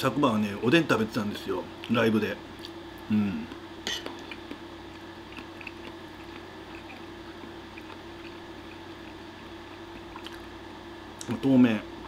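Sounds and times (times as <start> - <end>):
steady low hum: 0.0 - 12.0
faint chewing: 3.4 - 10.5.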